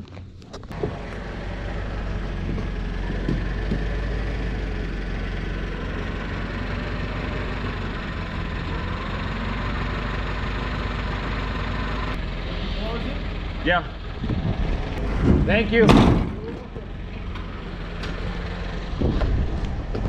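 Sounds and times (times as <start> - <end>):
forklift engine idling: 0.7 - 20.0.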